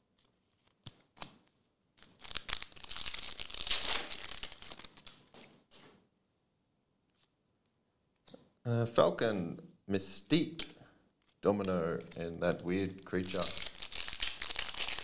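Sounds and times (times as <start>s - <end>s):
foil wrapper crinkling and ripping: 2.0s - 5.3s, 13.2s - 15.0s.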